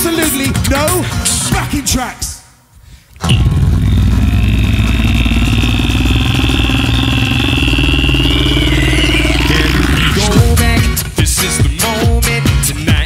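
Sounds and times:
beatboxing into a microphone: 2.9 - 13.0.

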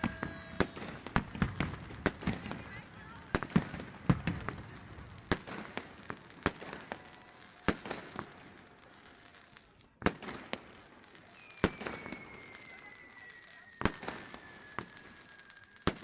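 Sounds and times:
firecrackers crackling: 0.0 - 16.0
firework bangs: 0.0 - 16.0
firework whistle falling in pitch: 11.2 - 16.0.

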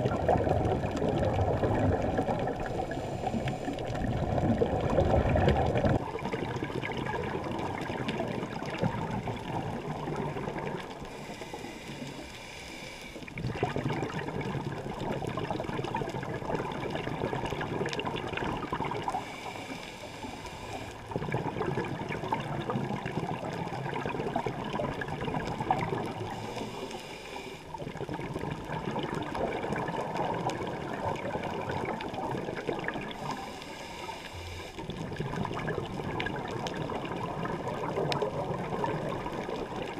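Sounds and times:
exhaled bubbles gurgling: 0.0 - 39.9
regulator hissing inhale: 2.6 - 4.0, 11.0 - 13.3, 19.1 - 21.1, 26.2 - 27.7, 33.1 - 34.9.

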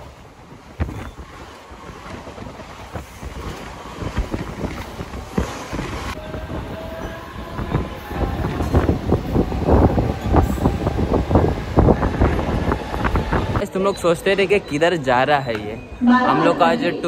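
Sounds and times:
wheels knocking and clattering: 0.0 - 6.7
train rumbling: 0.0 - 17.0.

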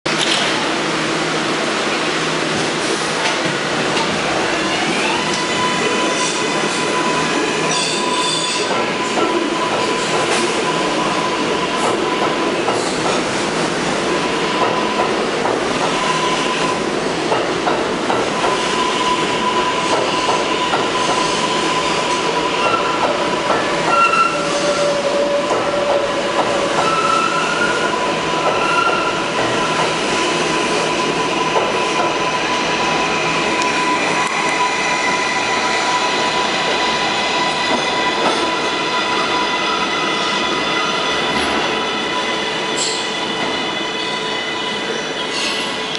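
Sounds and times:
train wheels rumbling on rail: 0.1 - 45.9
wheel squeals: 18.5 - 33.0.

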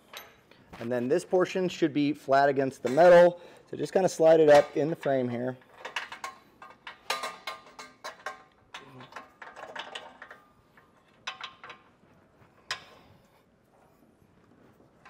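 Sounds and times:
metal nut plate clinking: 4.5 - 11.9.

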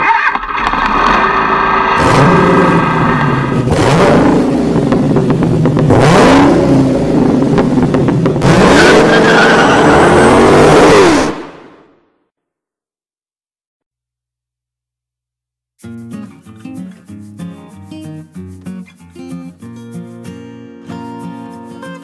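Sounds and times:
rush of noise: 0.0 - 5.2, 6.4 - 12.0
car engine revving: 0.3 - 12.0.

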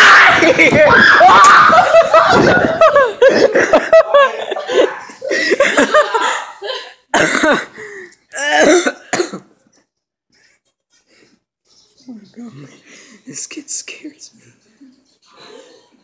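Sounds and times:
person coughing: 7.1 - 7.8, 8.4 - 9.6.

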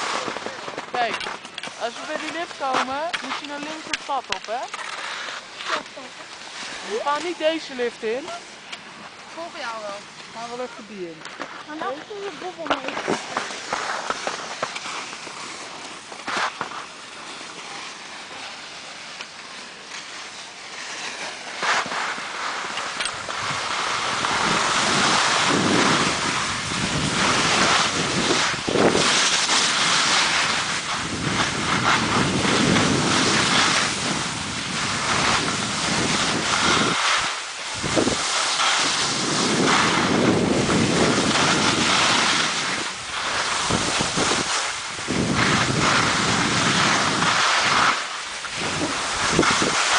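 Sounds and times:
skis hissing over snow: 0.0 - 49.9
wind on microphone: 23.0 - 49.9.

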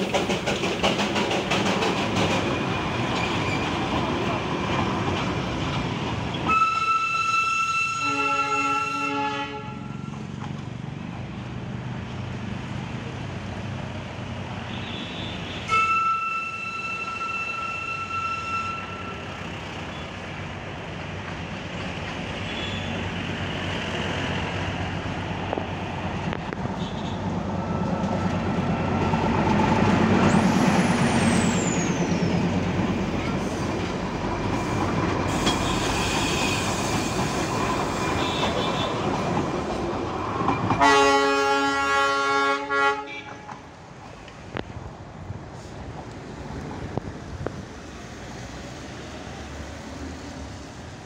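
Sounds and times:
road traffic: 0.0 - 51.0
train engine rumble: 0.0 - 51.0
lower horn: 6.5 - 10.1, 40.8 - 43.4
train horn blowing: 6.5 - 10.2, 14.8 - 19.4, 35.5 - 36.9, 40.8 - 43.6
high squeal: 30.3 - 32.5.

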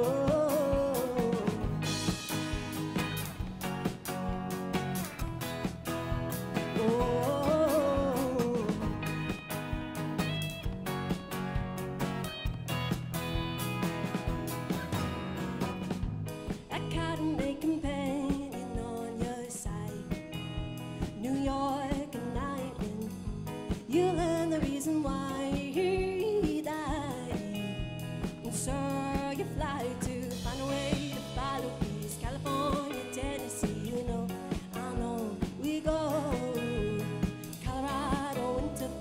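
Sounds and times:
woman singing lead: 0.0 - 3.9, 5.6 - 11.6, 16.4 - 39.0
folk rock band playing: 0.0 - 39.0.

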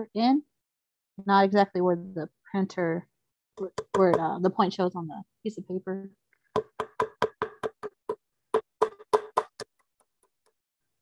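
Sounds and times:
hammer knocking nail into wood: 6.6 - 9.6.

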